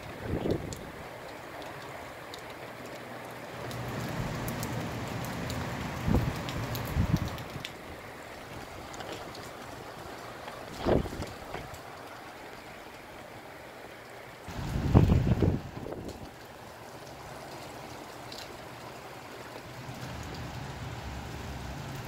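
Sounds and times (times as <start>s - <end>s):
wind gusts buffeting microphone: 0.0s - 1.1s, 5.7s - 8.0s, 10.6s - 11.8s, 14.5s - 16.4s
steady rain: 0.0s - 22.0s.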